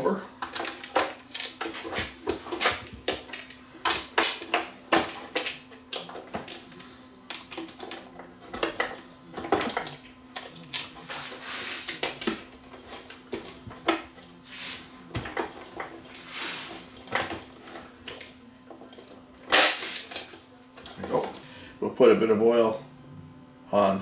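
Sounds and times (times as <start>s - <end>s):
faint steady hum: 0.0s - 24.0s.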